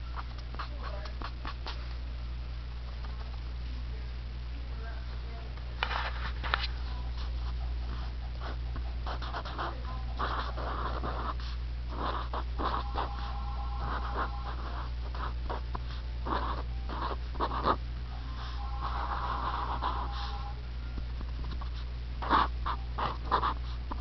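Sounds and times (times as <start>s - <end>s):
low electrical hum: 0.0s - 24.0s
pen scratching on paper: 0.2s - 1.8s, 5.9s - 20.6s, 21.5s - 24.0s.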